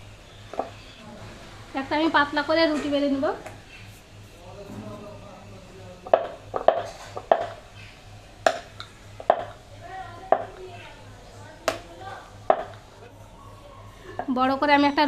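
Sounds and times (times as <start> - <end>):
rolling pin clacking on wooden board: 6.0 - 7.6, 8.4 - 9.6, 12.5 - 12.8.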